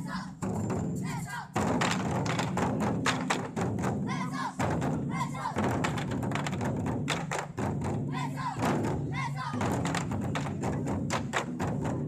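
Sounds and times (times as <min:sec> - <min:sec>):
large drums struck hard: 0:00.4 - 0:12.0
drummers shouting: 0:04.0 - 0:05.8, 0:08.0 - 0:10.1.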